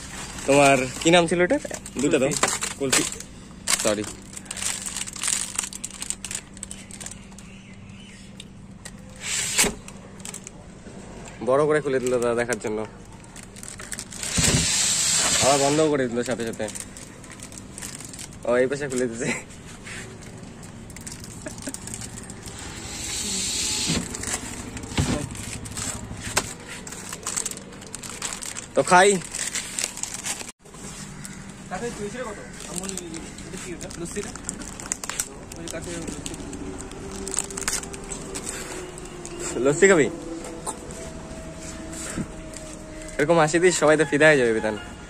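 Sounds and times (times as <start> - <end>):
steady low hum: 13.0 - 43.2
passing vehicle hiss: 22.4 - 25.0.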